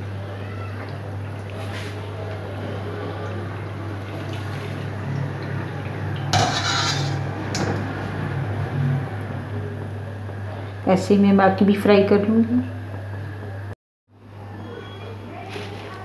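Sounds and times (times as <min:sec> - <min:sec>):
wire skimmer in oil: 0:00.0 - 0:13.0
hot oil sizzling: 0:04.6 - 0:09.0.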